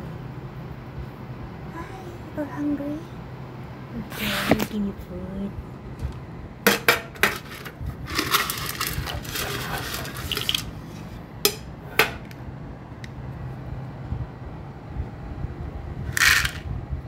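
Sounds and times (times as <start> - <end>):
rattling clatter: 6.8 - 10.7.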